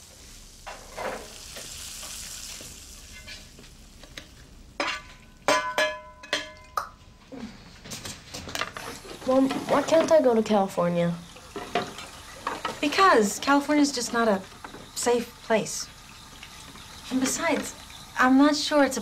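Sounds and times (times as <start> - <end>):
soft hiss: 0.0 - 5.5
utensils and dishes clinking: 4.8 - 6.8, 11.3 - 14.9.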